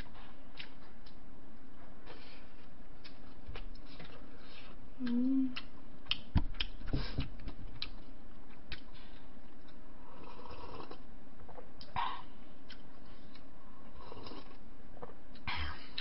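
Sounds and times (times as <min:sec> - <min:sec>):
person humming: 0:05.0 - 0:05.7.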